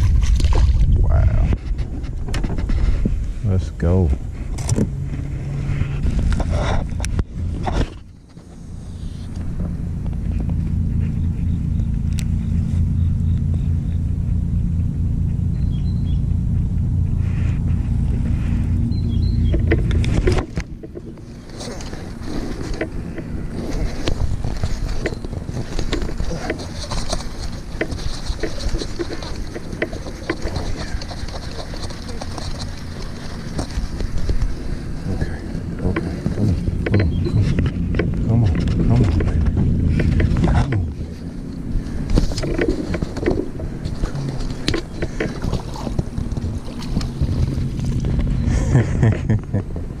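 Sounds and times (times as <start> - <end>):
wind buffeting microphone: 0.0 - 8.2, 15.8 - 50.0
knocks and clicks: 35.8 - 41.0.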